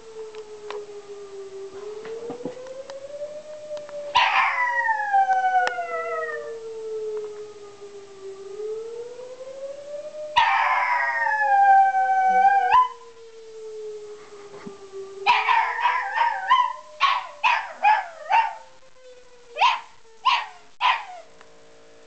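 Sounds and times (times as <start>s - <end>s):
rising and falling warning siren: 0.0s - 22.0s
dog howling: 4.1s - 6.6s, 10.4s - 13.0s, 15.2s - 18.7s, 19.6s - 21.3s.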